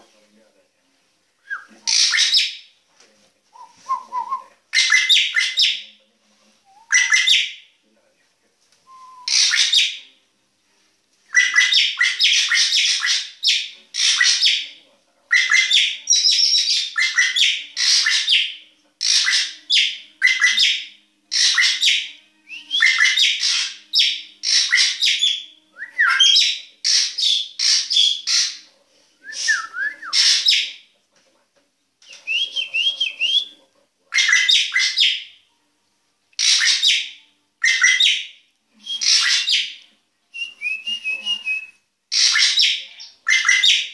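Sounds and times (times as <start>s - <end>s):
bird chattering: 6.9s - 7.6s, 42.1s - 43.9s.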